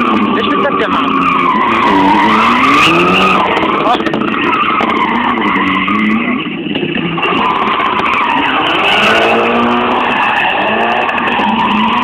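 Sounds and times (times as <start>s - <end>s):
tyres squealing: 0.0s - 6.3s
car engine revving hard: 0.0s - 12.0s.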